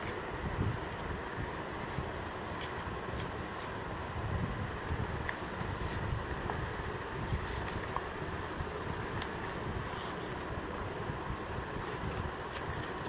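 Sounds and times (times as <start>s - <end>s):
low rumbling background noise: 0.0s - 13.0s
paper envelope being torn: 11.8s - 13.0s.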